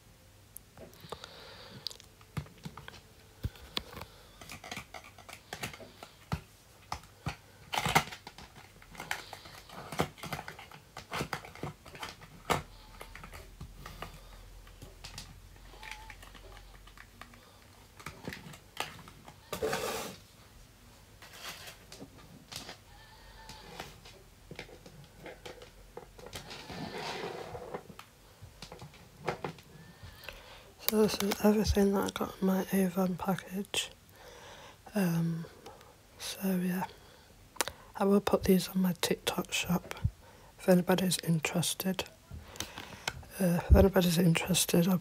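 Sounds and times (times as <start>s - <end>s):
rustling scrape: 19.5s - 20.3s, 21.2s - 21.9s, 26.3s - 27.9s.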